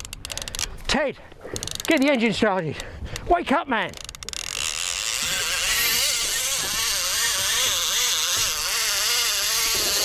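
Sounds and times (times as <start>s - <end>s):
fishing reel ratchet buzzing: 0.0s - 0.7s, 1.6s - 2.1s, 3.9s - 10.0s.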